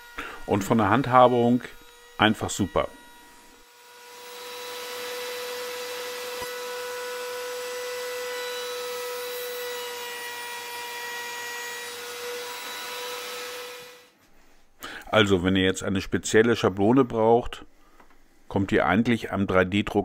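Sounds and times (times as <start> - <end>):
router whining: 0.0 - 14.1.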